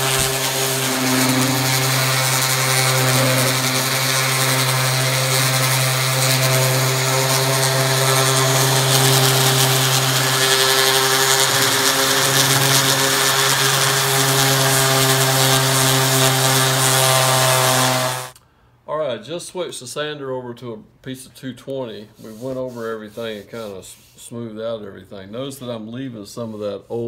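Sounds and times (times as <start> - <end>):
orbital sander motor hum: 0.0 - 18.4
sandpaper scratching on wood: 0.0 - 18.4, 22.2 - 24.2.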